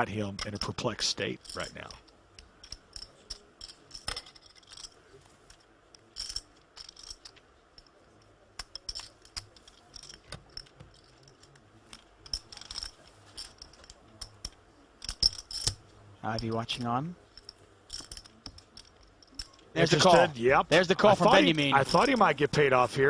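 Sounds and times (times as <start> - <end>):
poker chips clicking: 1.4 - 5.0, 6.0 - 7.9, 8.6 - 15.8.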